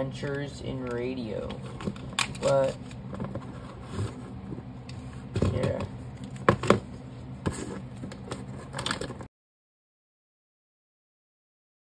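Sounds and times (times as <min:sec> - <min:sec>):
low steady hum: 0:00.0 - 0:09.3.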